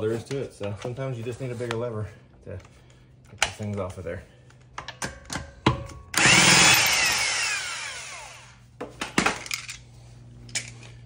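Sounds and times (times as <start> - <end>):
impact wrench whining: 4.8 - 8.7.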